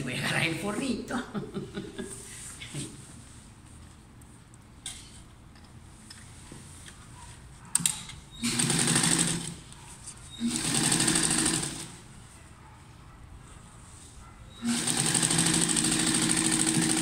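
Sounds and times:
sewing machine stitching: 0:08.4 - 0:09.6, 0:10.4 - 0:12.0, 0:14.6 - 0:17.0.

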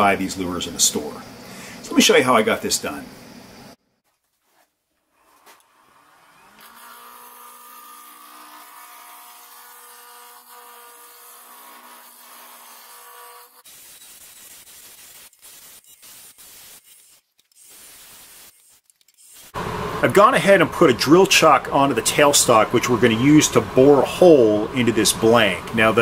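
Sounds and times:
wood lathe humming: 0:05.2 - 0:13.6, 0:19.6 - 0:26.0.

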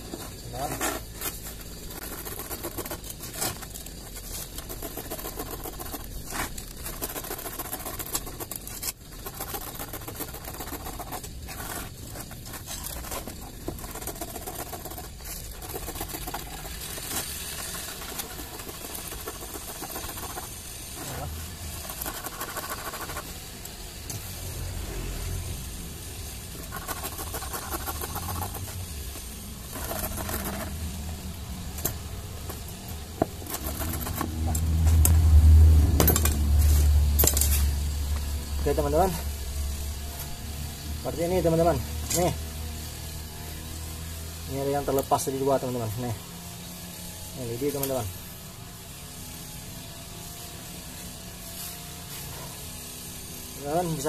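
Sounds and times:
blade cutting through rubber: 0:00.0 - 0:35.3.

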